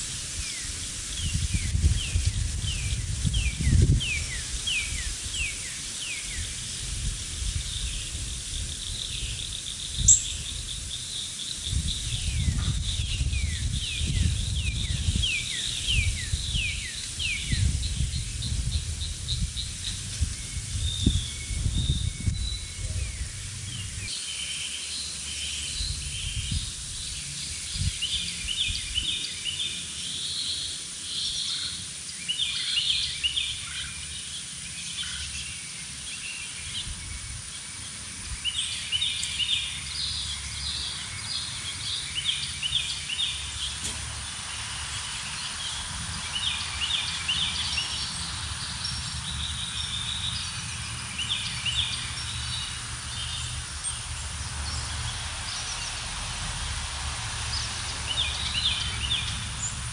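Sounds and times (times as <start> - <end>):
birds chirping: 7.4 - 59.9
steady low rumble: 11.6 - 24.1.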